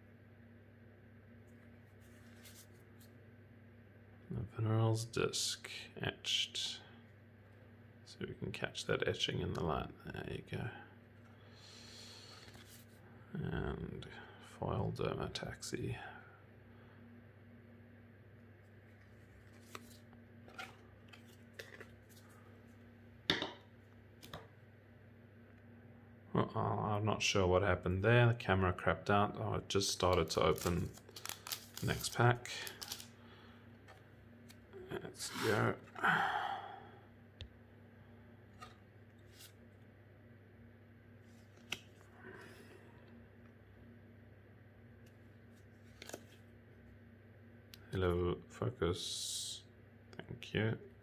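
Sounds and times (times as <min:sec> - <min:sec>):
steady low hum: 0:00.0 - 0:51.0
trading cards and packaging handled: 0:01.5 - 0:03.2, 0:12.3 - 0:13.0, 0:18.8 - 0:22.8, 0:29.9 - 0:33.2, 0:45.1 - 0:46.5
cards clicking as flipped: 0:30.1 - 0:32.0, 0:32.6 - 0:33.1, 0:41.5 - 0:42.0, 0:45.8 - 0:46.4.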